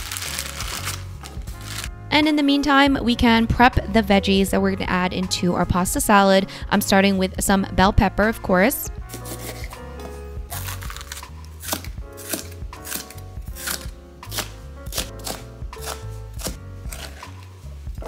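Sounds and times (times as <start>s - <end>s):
background music: 0.0s - 18.0s
knife chopping on cutting board: 9.1s - 17.5s.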